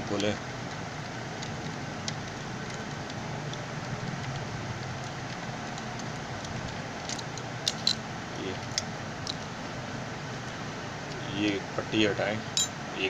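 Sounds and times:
background hiss and hum: 0.0 - 13.0.

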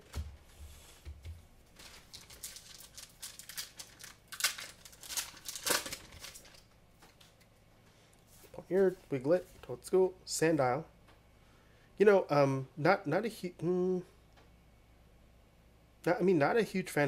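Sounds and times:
foil wrapper crinkling: 1.6 - 7.4
foil wrapper ripping: 1.7 - 6.7.

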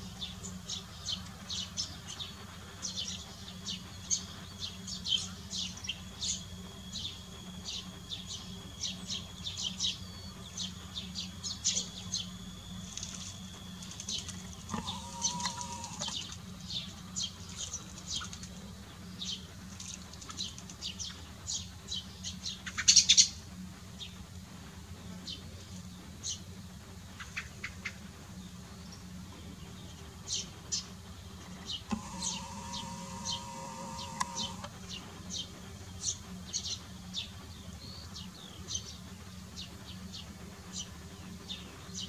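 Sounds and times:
small birds chirping: 0.0 - 42.0
thin steady whistle: 5.8 - 14.0.

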